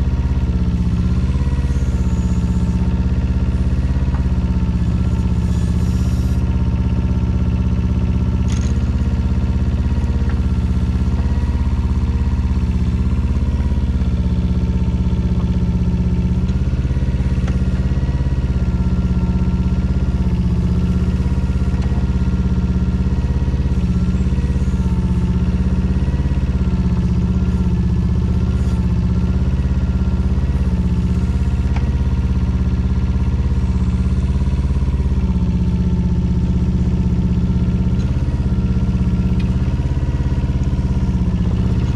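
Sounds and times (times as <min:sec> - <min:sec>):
mini excavator diesel engine running: 0:00.0 - 0:41.9.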